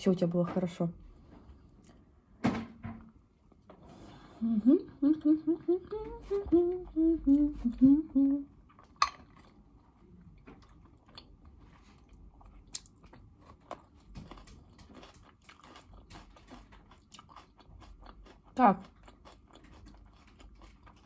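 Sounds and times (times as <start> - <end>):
woman humming: 4.4 - 8.6
chewing salad crunching: 8.6 - 21.0.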